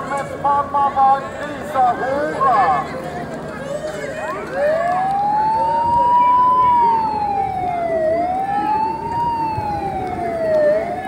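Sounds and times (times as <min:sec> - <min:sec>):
siren wailing: 0:04.3 - 0:11.0.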